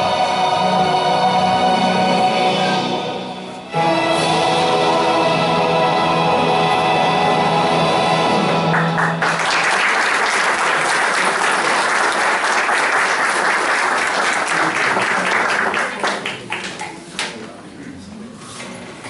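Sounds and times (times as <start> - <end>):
background music: 0.0 - 9.5
audience clapping: 8.6 - 17.4.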